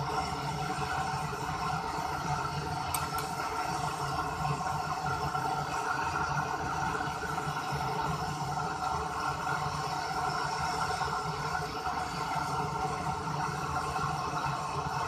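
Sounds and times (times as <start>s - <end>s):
gas torch burning: 0.0s - 15.0s.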